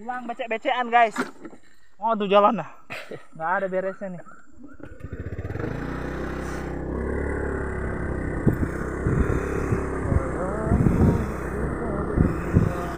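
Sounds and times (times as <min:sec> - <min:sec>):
sharp thumps on rough track: 0:01.0 - 0:01.7, 0:04.8 - 0:12.9
motor scooter engine running: 0:04.8 - 0:12.9.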